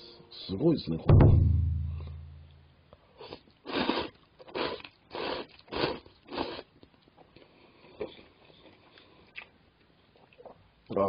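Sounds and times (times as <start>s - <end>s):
person slurping noodles: 3.2s - 6.7s.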